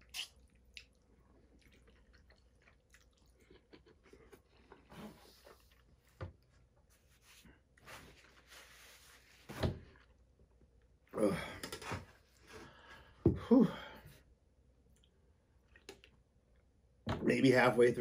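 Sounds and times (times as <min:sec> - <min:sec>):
person making vocal noises: 0:11.1 - 0:11.7.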